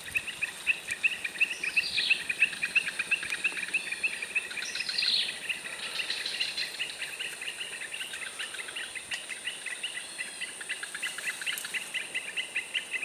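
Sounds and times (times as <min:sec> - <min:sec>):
high insect hum: 0:00.0 - 0:13.0.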